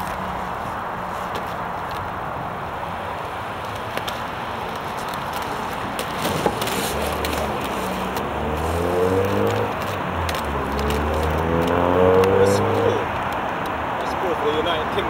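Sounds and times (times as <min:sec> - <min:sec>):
skate wheels rolling on tarmac: 0:00.0 - 0:15.0
traffic noise: 0:00.0 - 0:15.0
car engine rising in pitch: 0:06.8 - 0:13.2.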